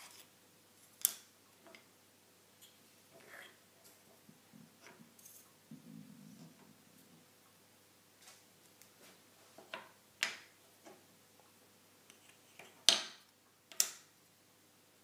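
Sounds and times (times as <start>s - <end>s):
wooden pieces clicking on table: 12.6s - 14.1s.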